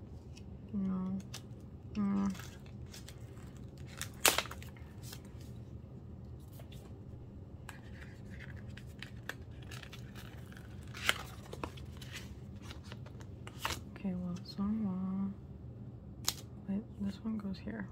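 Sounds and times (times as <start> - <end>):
packaging rustling and scraping: 7.7 - 13.8.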